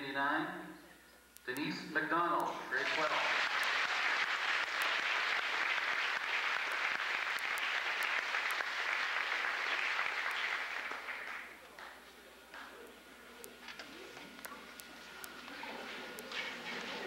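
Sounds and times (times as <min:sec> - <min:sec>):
crowd applauding: 0:02.6 - 0:12.8.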